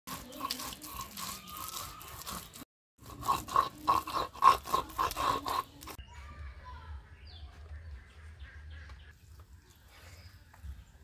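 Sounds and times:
stone roller grinding on stone: 0.1s - 6.0s.

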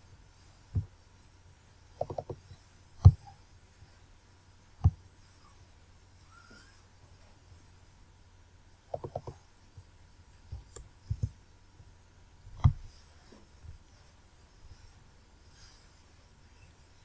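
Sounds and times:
computer mouse clicks: 2.0s - 3.2s, 8.9s - 9.4s, 10.5s - 11.4s, 12.6s - 12.8s.

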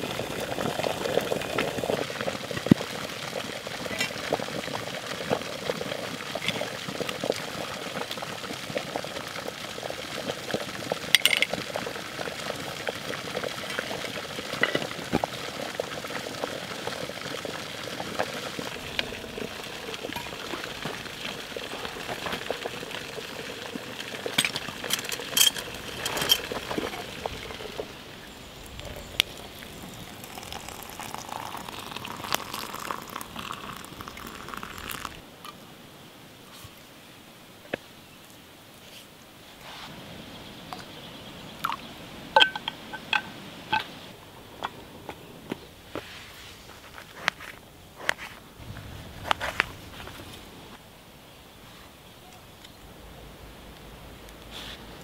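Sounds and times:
kettle boiling: 0.0s - 35.6s, 41.6s - 43.9s
metal clinks of mugs and lids: 24.3s - 27.0s, 42.4s - 44.0s.

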